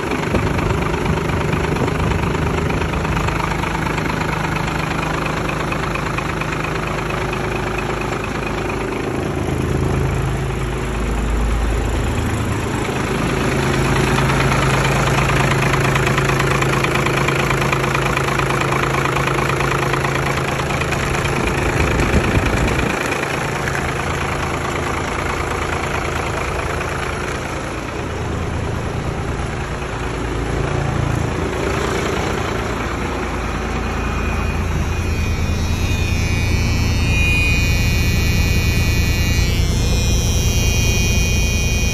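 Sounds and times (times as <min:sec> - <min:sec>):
diesel engine idling: 0:00.0 - 0:41.9.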